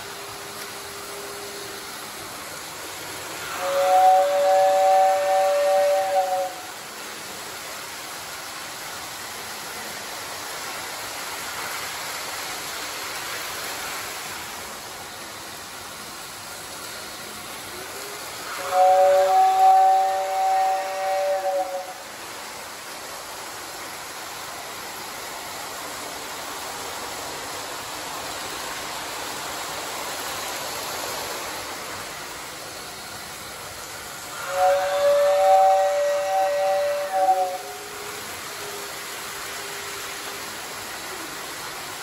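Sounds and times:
toy trains running on track: 0.0 - 42.0
toy train whistle chord: 3.4 - 6.7, 17.7 - 22.1, 34.2 - 40.5.

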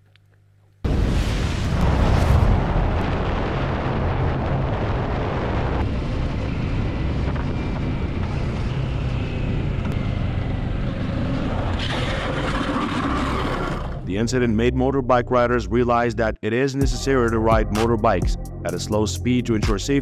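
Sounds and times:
wind rush on microphone: 0.9 - 10.6
motorcycle engine and tyres: 6.0 - 14.0.

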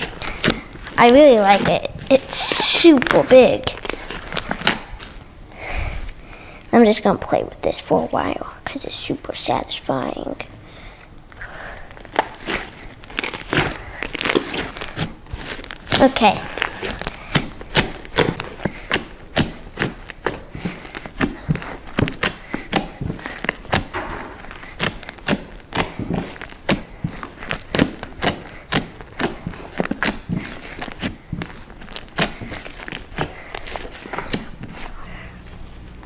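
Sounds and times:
slime popping and crackling: 0.0 - 5.2, 11.8 - 34.9.

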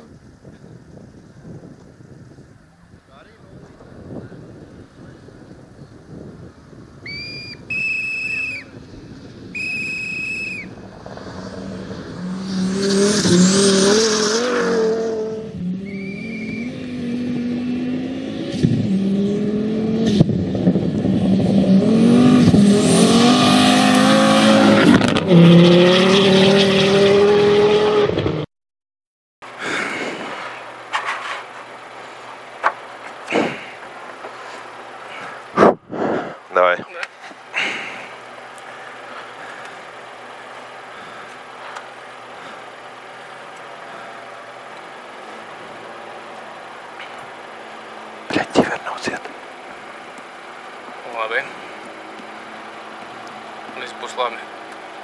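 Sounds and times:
rally car engine revving: 9.6 - 28.5
in-car sound: 29.4 - 55.0.

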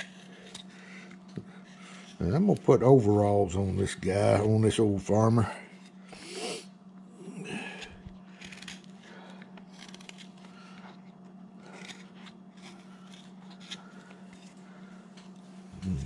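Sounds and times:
steady low hum: 0.0 - 16.0
gouge slicing and scraping wood: 8.3 - 14.8.

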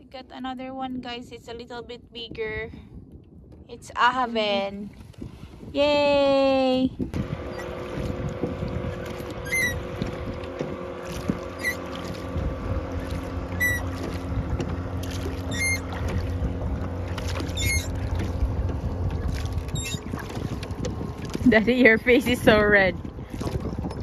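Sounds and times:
motorboat engine hum: 0.0 - 24.0
wind and water rumble: 0.0 - 24.0
oarlocks squeaking: 8.9 - 9.9, 11.5 - 12.1, 13.5 - 14.0, 15.4 - 16.1, 17.4 - 18.0, 19.7 - 20.1.

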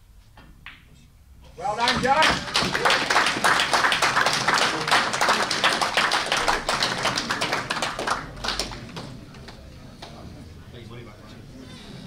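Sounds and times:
audience clapping: 1.8 - 10.2.

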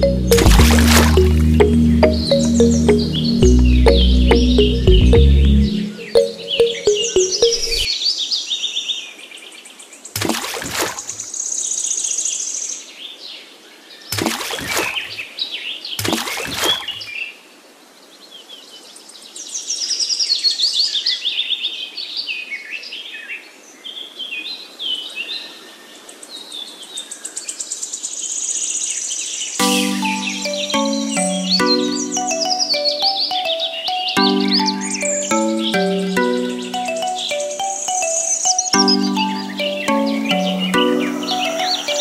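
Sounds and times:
birds chirping and singing: 1.6 - 7.9, 29.6 - 42.0.

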